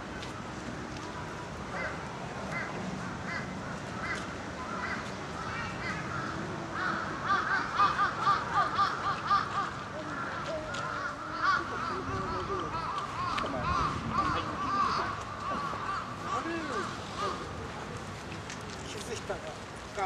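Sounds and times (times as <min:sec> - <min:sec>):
crows cawing: 0:01.7 - 0:17.5.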